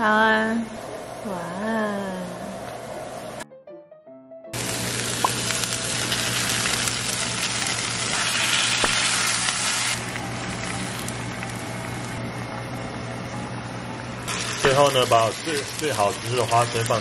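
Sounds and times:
chicken sizzling in a frying pan: 0:04.6 - 0:12.2, 0:14.2 - 0:17.0.

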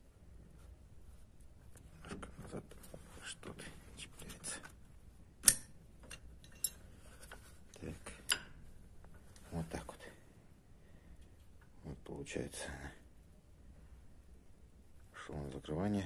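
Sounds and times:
metal clicks and light knocks: 0:05.4 - 0:09.2.

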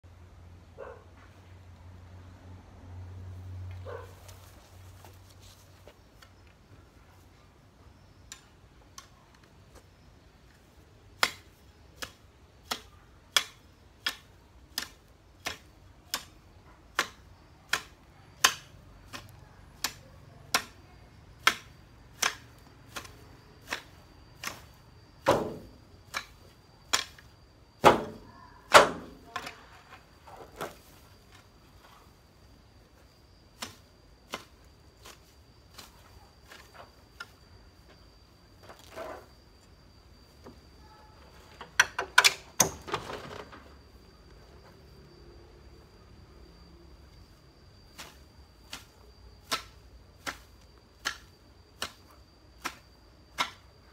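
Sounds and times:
hoe chopping into soil: 0:11.2 - 0:20.8, 0:21.4 - 0:29.6, 0:33.5 - 0:37.3, 0:47.9 - 0:53.7.

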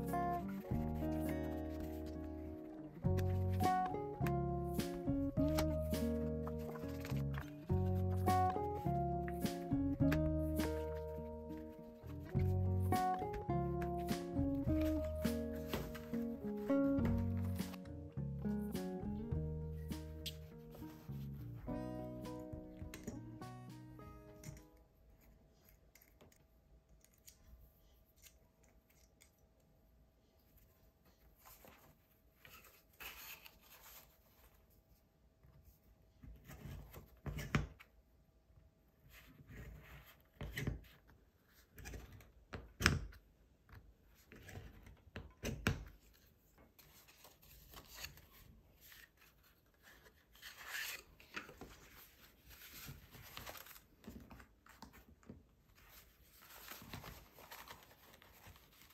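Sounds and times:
paper rustling: 0:00.0 - 0:18.0, 0:19.7 - 0:21.8, 0:30.5 - 0:35.0, 0:46.0 - 0:58.9.

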